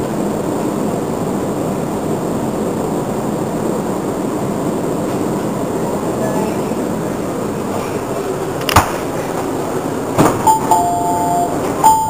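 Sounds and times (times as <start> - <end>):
train standing at platform: 0.0 - 12.0
two-note door chime: 10.4 - 12.0.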